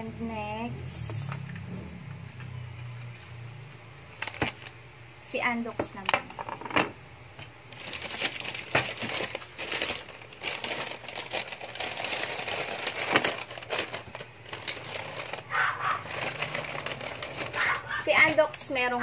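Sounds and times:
plastic wrapping crinkling: 4.1s - 4.8s, 7.4s - 19.0s.

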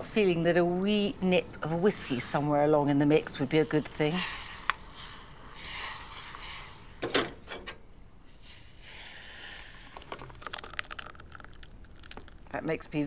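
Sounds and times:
sauce pouring into glass: 9.7s - 12.5s.

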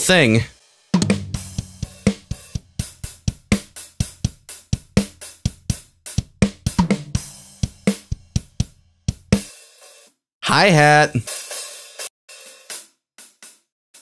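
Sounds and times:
hi-hat and cymbals: 0.0s - 10.1s, 11.3s - 14.0s
acoustic drum kit playing: 0.0s - 13.4s.

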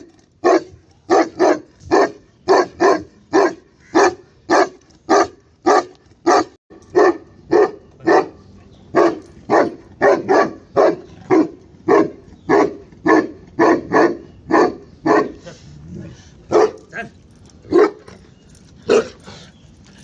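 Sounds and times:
dog barking: 0.4s - 8.4s, 9.0s - 15.4s, 16.5s - 16.8s, 17.7s - 18.0s, 18.9s - 19.2s.

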